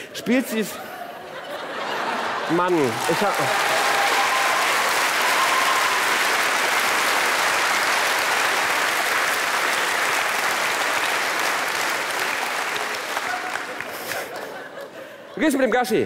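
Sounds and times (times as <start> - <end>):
audience applauding: 2.1 - 14.9.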